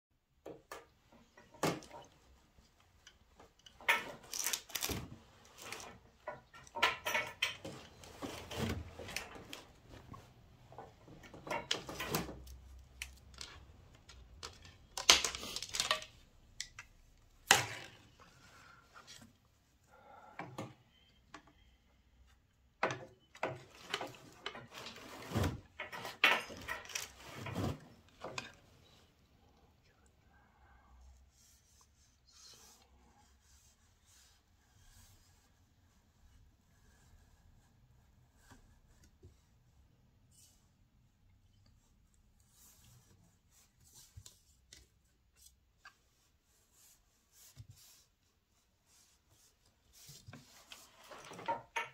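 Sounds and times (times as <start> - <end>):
wooden loom knocking and clatter: 5.8 - 9.5, 10.7 - 16.2, 22.8 - 28.6, 51.0 - 51.9.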